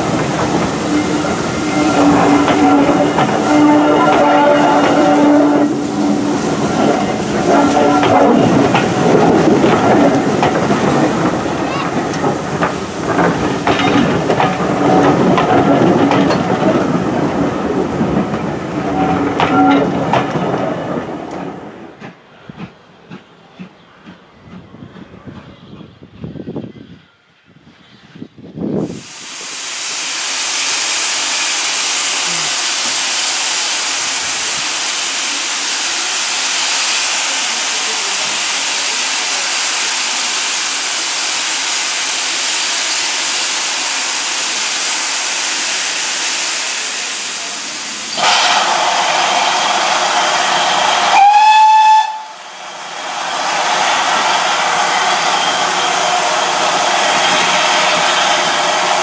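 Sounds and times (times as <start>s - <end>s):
steam hissing: 0.0s - 21.2s, 28.7s - 59.0s
steam whistle blast: 0.8s - 8.6s, 48.1s - 52.5s.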